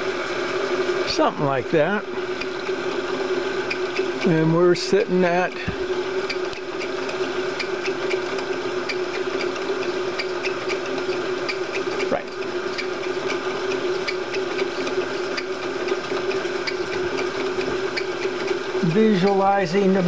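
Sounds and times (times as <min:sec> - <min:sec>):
milling spindle humming: 0:00.0 - 0:20.0
light ticking from drive: 0:05.5 - 0:20.0.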